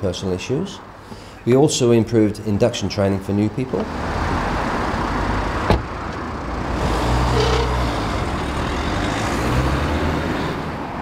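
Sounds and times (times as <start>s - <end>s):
car engine pulling away: 3.9s - 10.8s
car door shutting: 5.6s - 5.9s.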